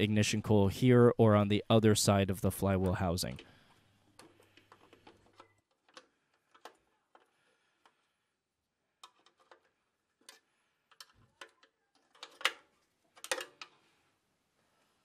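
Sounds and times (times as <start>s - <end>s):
metal clicks and taps: 13.2s - 13.8s.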